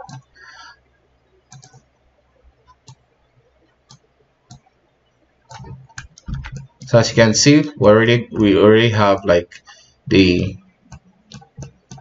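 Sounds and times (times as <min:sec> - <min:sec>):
computer mouse clicks: 0:00.0 - 0:00.3, 0:01.5 - 0:02.0, 0:02.6 - 0:04.7, 0:05.5 - 0:06.9, 0:10.9 - 0:12.0.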